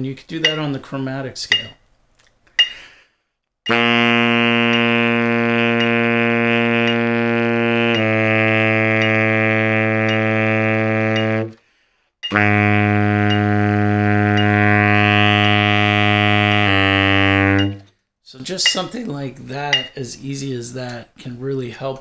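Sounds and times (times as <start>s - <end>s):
breath: 2.6s - 3.4s, 11.6s - 12.2s
baritone saxophone long tones: 3.7s - 11.6s, 12.3s - 17.8s.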